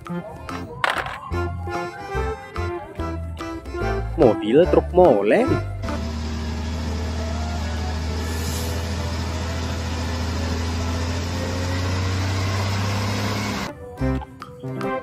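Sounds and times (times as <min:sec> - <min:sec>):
diesel truck engine droning: 0:05.5 - 0:13.7.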